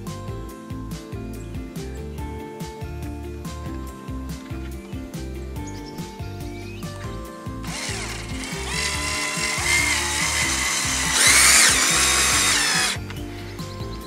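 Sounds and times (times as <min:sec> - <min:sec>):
background music: 0:00.0 - 0:14.0
cordless drill motor whine: 0:07.6 - 0:13.1.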